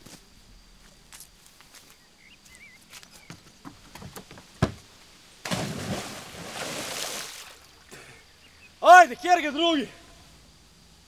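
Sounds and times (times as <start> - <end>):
footsteps on wooden planks: 0.8 - 4.9
person splashing into water: 5.4 - 7.7
water churning: 5.4 - 7.8.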